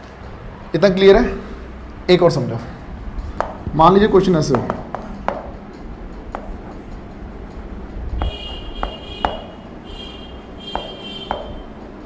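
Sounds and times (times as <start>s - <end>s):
chalk tapping on chalkboard: 3.4s - 3.7s, 4.5s - 5.6s, 6.2s - 11.8s
chalk squeaking: 10.7s - 11.7s.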